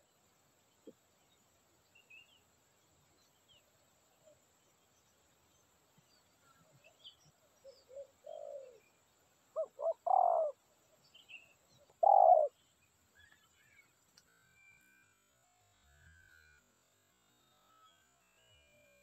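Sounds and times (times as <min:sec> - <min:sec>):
faint high bird chirps: 0:03.2 - 0:15.2
dove cooing: 0:07.7 - 0:08.8, 0:09.6 - 0:10.6, 0:11.9 - 0:12.5.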